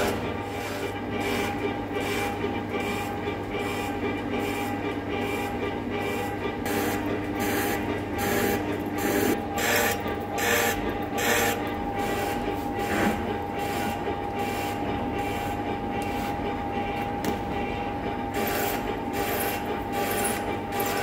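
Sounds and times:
lathe running steady tone: 0.0 - 21.0.

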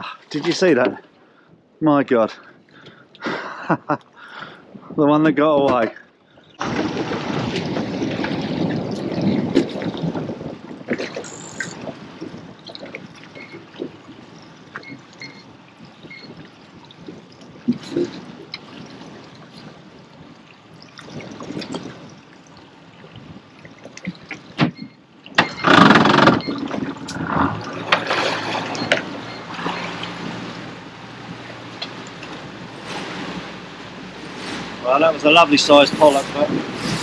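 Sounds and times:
water slopping against hull: 0.0 - 1.6, 5.5 - 37.0
outboard motor running: 5.6 - 37.0
knocks on boat: 24.1 - 27.0.

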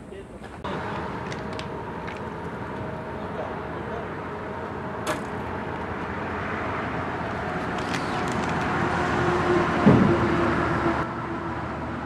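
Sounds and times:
road traffic noise: 0.0 - 12.0
dull thump: 9.8 - 10.2.

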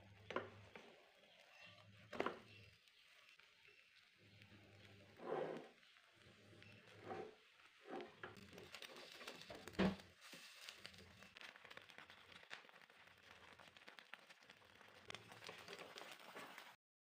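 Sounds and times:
bread frying with light crackle: 0.0 - 16.8
spatula scraping pan: 4.7 - 11.4.

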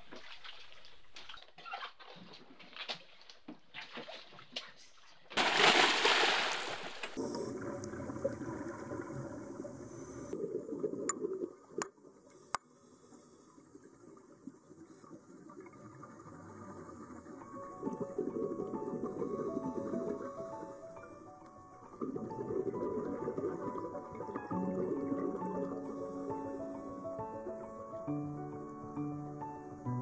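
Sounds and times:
loud splash into water: 5.4 - 7.2
muffled underwater wash: 6.8 - 28.6.

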